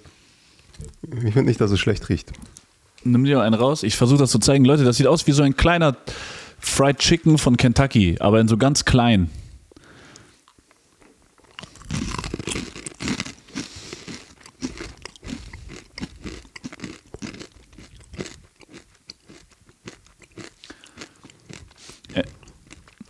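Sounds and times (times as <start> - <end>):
crunching crisp snack: 10.5 - 23.0.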